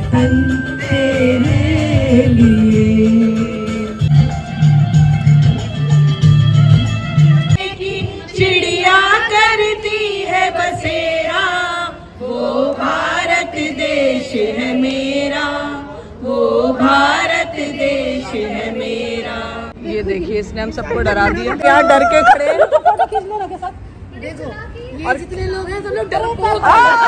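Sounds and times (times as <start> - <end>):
women singing together: 0.0 - 4.1, 7.6 - 19.8.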